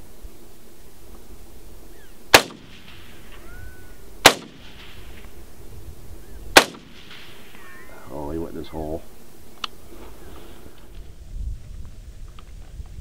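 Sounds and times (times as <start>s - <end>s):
rifle shots: 2.3s - 3.5s, 4.2s - 5.3s, 6.5s - 7.6s.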